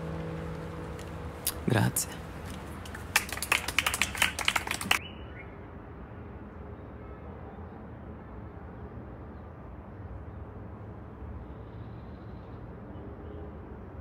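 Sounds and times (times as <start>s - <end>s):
distant road traffic rumble: 0.0s - 6.1s.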